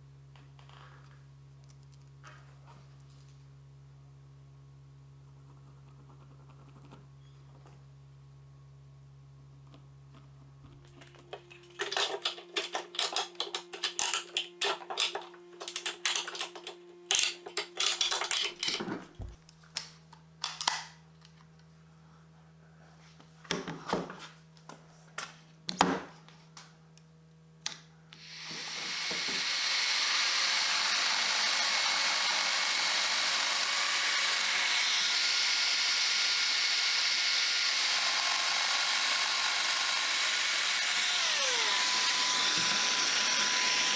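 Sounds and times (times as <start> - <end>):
power joiner running: 11.8 - 18.9, 28.2 - 43.9.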